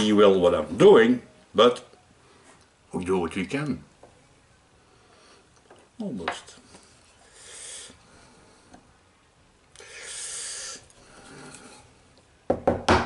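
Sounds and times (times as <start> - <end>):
soft hissing: 4.1 - 12.2.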